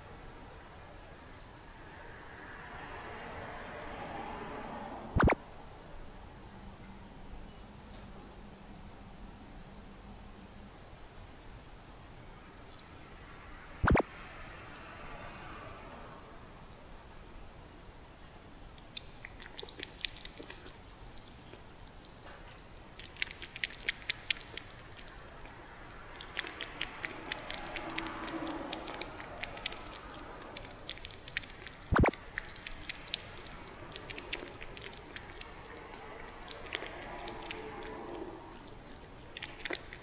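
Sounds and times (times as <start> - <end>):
kitten lapping milk: 18.7 - 40.0.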